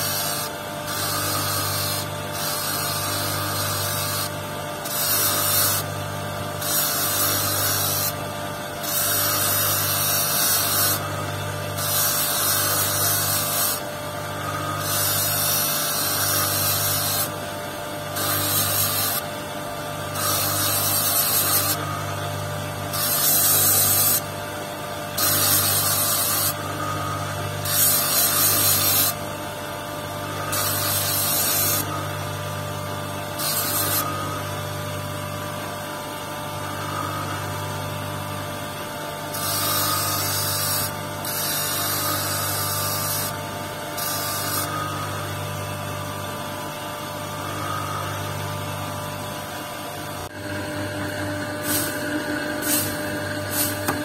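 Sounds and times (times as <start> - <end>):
stone hissing on spinning wheel: 0.0 - 17.4, 18.1 - 19.4, 20.0 - 24.4, 25.0 - 29.4, 30.0 - 32.4, 33.3 - 34.6, 39.3 - 45.4, 50.5 - 54.0
electric motor humming: 0.0 - 54.0.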